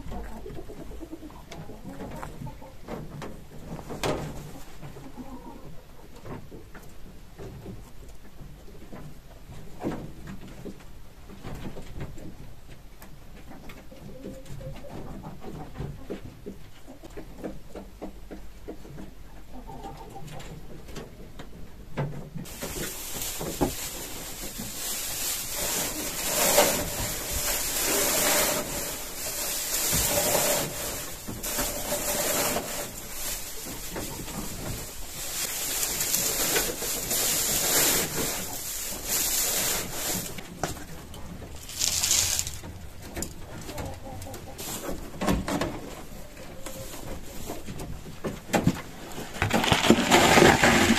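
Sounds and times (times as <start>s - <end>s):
dry hay rustling and crackling: 22.4s - 43.9s, 44.5s - 48.4s.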